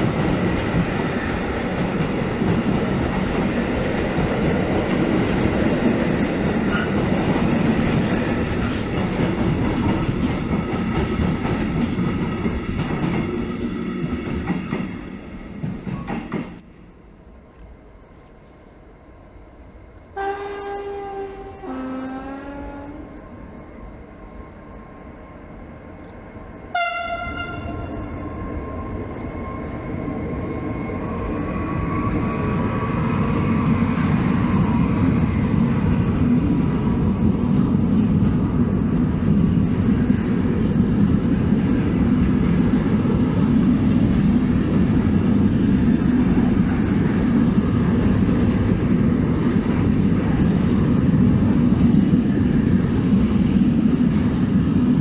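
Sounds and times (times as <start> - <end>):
train rumble: 0.0 - 55.0
train horn blast: 20.2 - 23.2, 26.7 - 28.1.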